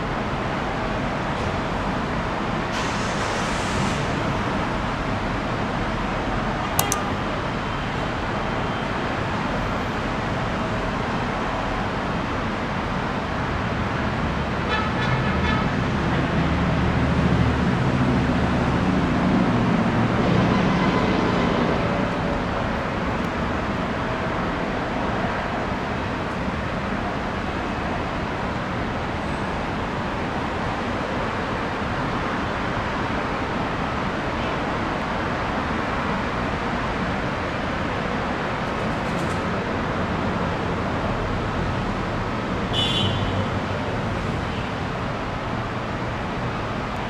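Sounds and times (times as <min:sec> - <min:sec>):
sharp click: 0:06.8 - 0:07.2.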